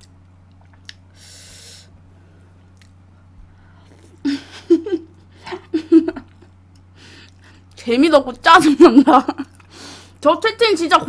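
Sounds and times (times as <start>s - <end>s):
short breath: 1.1s - 2.5s.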